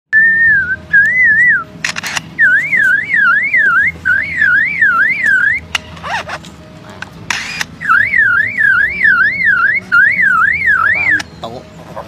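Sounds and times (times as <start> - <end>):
sharp cracks: 1.8 - 2.9, 5.7 - 7.8
lyrebird mimicking car alarm: 2.4 - 6.4, 7.3 - 11.4.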